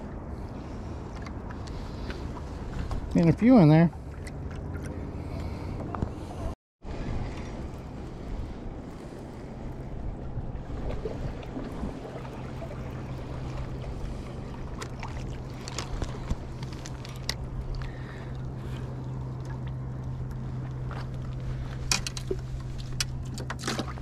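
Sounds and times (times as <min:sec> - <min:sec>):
low hum: 0:00.0 - 0:24.0
water lapping against rocks: 0:07.2 - 0:24.0.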